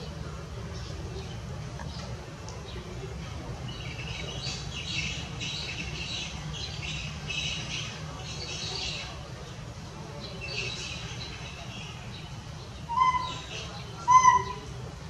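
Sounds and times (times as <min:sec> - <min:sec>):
high-pitched chirping calls: 0:12.8 - 0:14.8.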